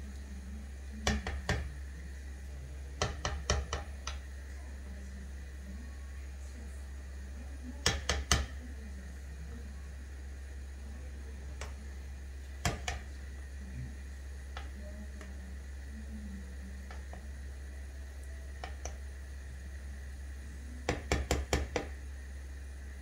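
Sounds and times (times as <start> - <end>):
steady low hum: 0.0 - 23.0
spoon knocking against a pot: 3.0 - 4.2, 7.8 - 8.5, 20.9 - 21.9.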